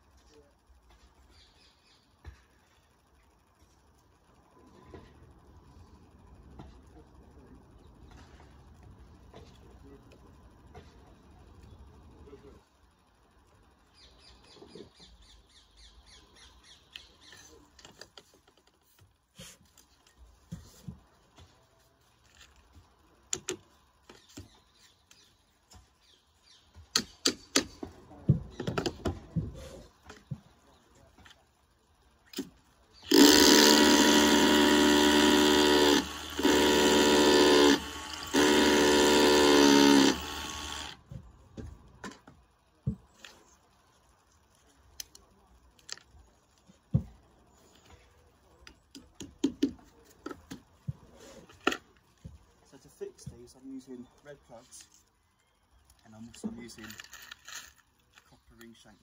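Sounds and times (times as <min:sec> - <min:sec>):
power drill drilling: 0:33.1 - 0:41.0.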